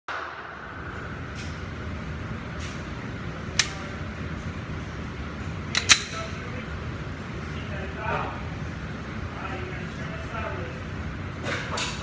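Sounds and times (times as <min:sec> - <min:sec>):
low background noise: 0:00.1 - 0:12.0
pistol metal parts clicking: 0:05.7 - 0:06.3.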